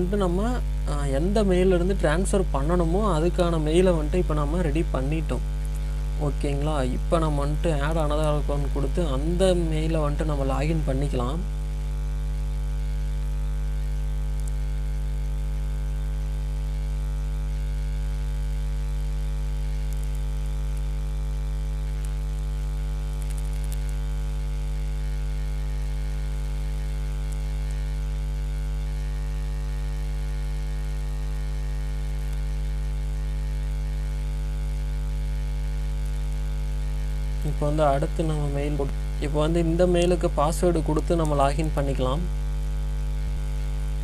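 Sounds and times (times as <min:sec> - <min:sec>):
steady electrical hum: 0:00.0 - 0:44.0.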